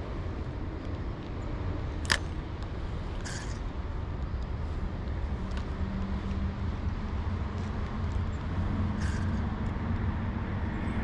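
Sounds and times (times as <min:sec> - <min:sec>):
low outdoor rumble: 0:00.0 - 0:11.0
sharp click: 0:02.0 - 0:02.3.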